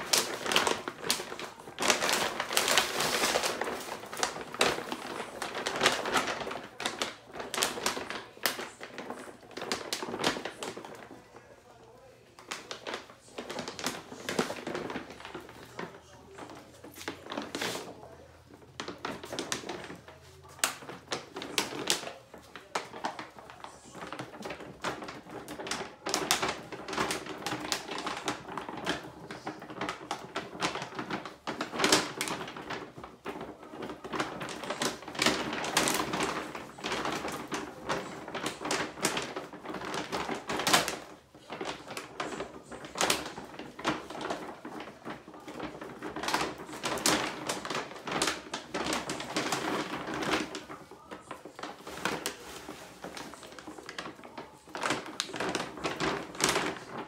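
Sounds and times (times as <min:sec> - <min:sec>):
dog food bag crinkling: 0:00.0 - 0:57.0.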